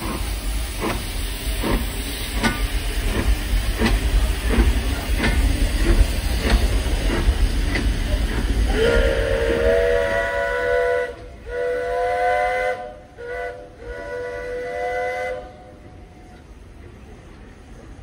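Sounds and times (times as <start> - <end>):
hiss of steam: 0.0 - 18.0
steam locomotive chuffing: 0.0 - 18.0.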